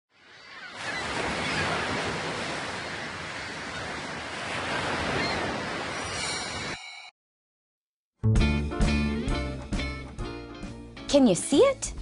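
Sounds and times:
ocean waves washing: 0.1 - 6.8.

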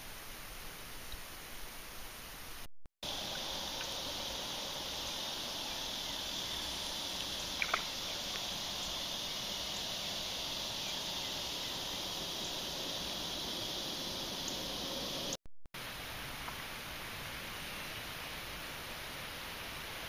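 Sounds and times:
insects buzzing: 3.0 - 15.4.

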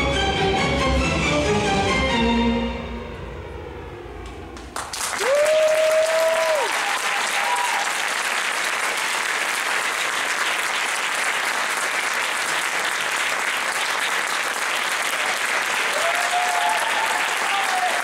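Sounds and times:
music: 0.0 - 3.8
audience applause: 4.6 - 18.0
long held shout: 5.2 - 8.0, 15.9 - 18.0.

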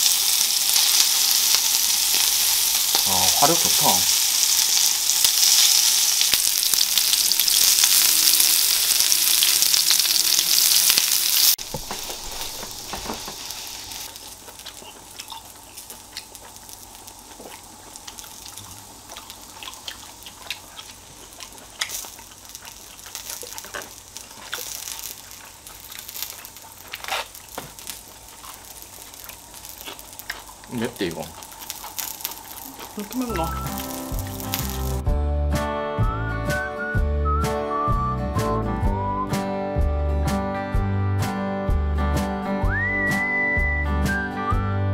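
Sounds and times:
meat sizzling on grill plate: 0.0 - 35.1.

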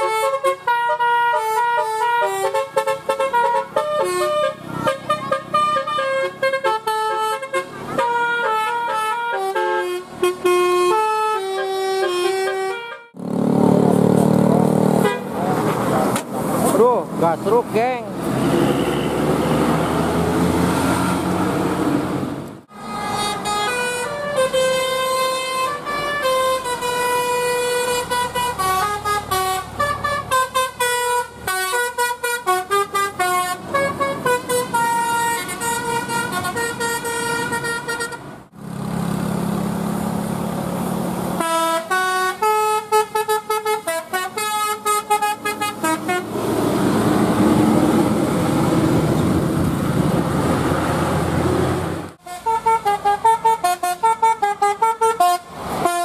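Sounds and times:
multi-trumpet bus horn melodies: 0.0 - 13.3, 15.0 - 15.9, 22.8 - 38.4, 41.4 - 46.4, 52.2 - 56.0
bus engines running: 0.0 - 56.0.

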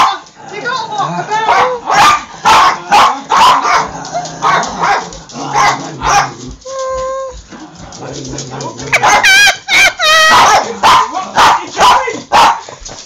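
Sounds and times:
small dogs barking: 0.0 - 0.8, 1.4 - 6.6, 8.6 - 12.8.

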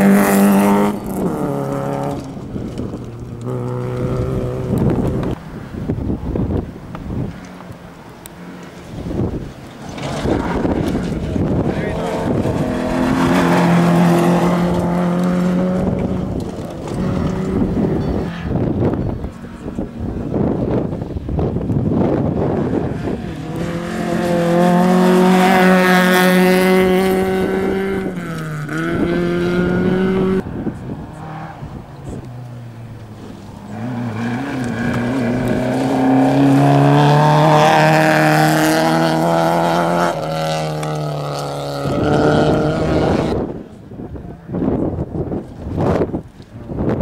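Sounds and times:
rally cars revving past: 0.0 - 46.2.

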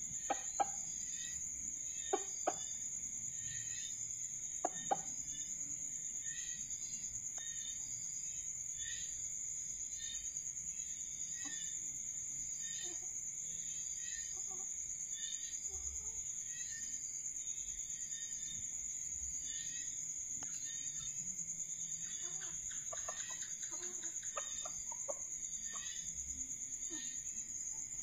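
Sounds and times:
junglefowl clucking: 0.0 - 0.9, 2.0 - 2.8, 4.6 - 5.2, 22.0 - 26.0
high-pitched insect trill: 0.0 - 28.0.

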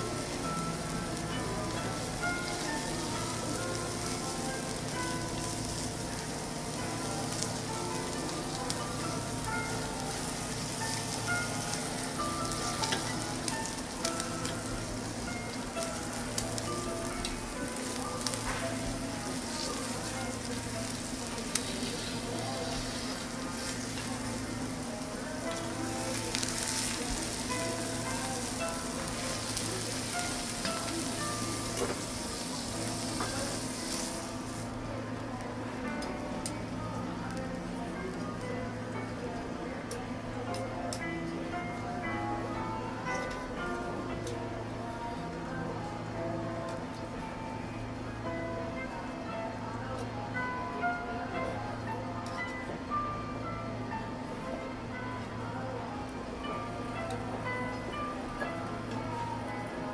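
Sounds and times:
steak sizzling on griddle: 0.0 - 34.9.

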